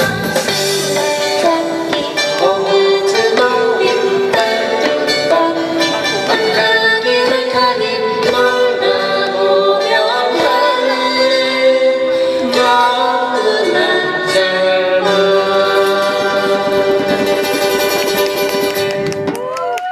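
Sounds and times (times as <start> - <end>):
strummed acoustic guitars: 0.0 - 19.3
woman and man singing: 1.2 - 17.3.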